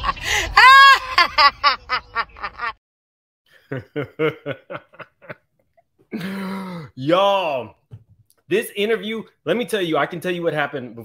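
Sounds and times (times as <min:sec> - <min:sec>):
woman laughing: 0:00.0 - 0:02.8, 0:03.7 - 0:05.4
man chuckling: 0:03.6 - 0:05.5.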